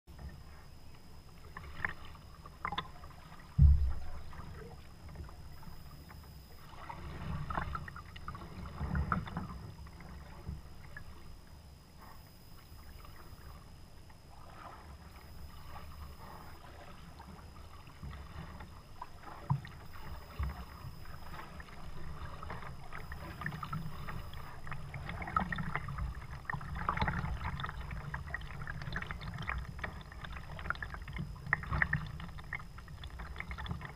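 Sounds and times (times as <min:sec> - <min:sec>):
paddle blades dipping and swishing: 0:00.1 - 0:33.9
sharp thump: 0:03.6 - 0:04.1
light knocks on kayak hull: 0:03.6 - 0:04.4.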